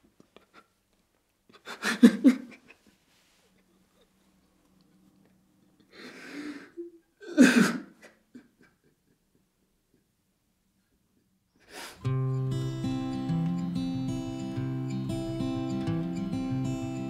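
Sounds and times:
man sobbing: 1.5 - 2.8
acoustic guitar music: 12.0 - 17.0.

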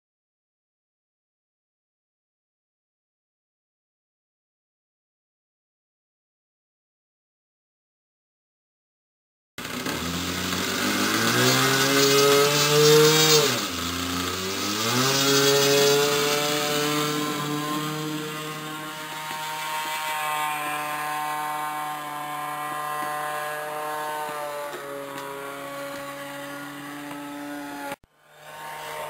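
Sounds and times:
model airplane engine revving: 9.6 - 29.0.

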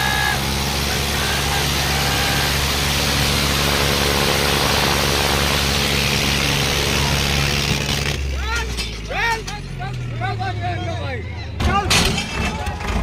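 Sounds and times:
faint shouts: 0.0 - 2.8
tractor engine under load: 0.0 - 10.8, 11.5 - 13.0.

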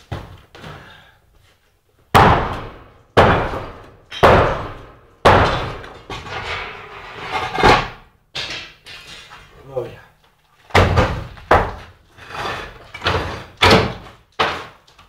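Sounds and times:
loud bangs: 2.1 - 6.8.

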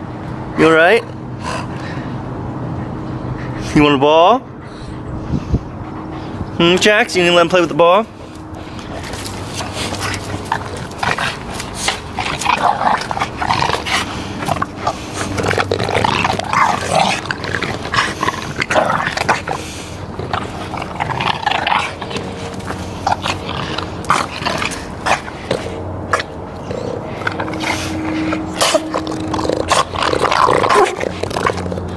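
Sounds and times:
scuffling clicks from mouths and paws: 6.2 - 31.9
dogs growling in play: 8.2 - 31.9.

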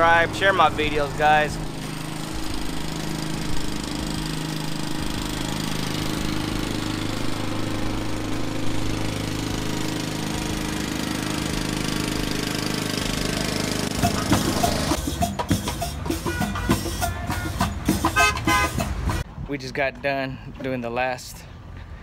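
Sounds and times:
lawn mower engine running: 0.0 - 19.2
street band drumming: 13.4 - 19.2.

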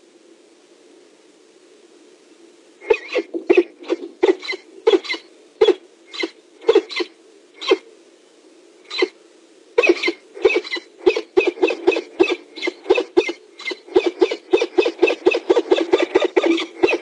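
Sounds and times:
falcon harsh kak calls: 2.8 - 7.9, 8.9 - 9.2, 9.8 - 17.0.

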